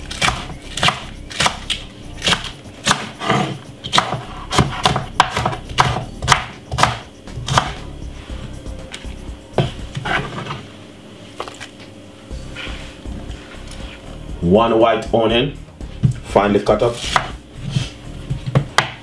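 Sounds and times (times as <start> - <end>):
knife chopping on cutting board: 0.1 - 7.9, 16.8 - 19.0.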